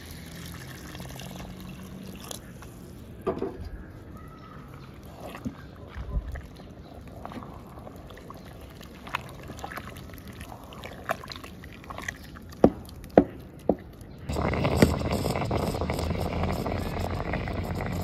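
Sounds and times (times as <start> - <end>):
wet squelches and plops: 4.8 - 14.1
paddle stirring thick porridge: 4.8 - 18.0
steady rushing noise: 14.3 - 18.0.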